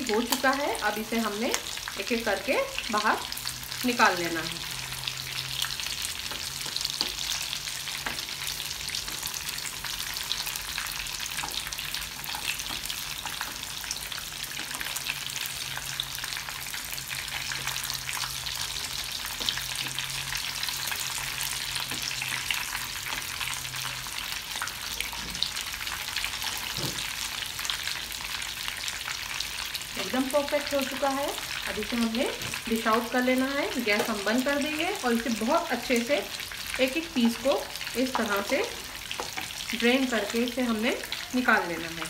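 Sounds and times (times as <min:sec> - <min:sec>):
meat deep-frying in hot oil: 0:00.0 - 0:42.0
spoon stirring in oil: 0:05.6 - 0:25.0, 0:36.6 - 0:39.8.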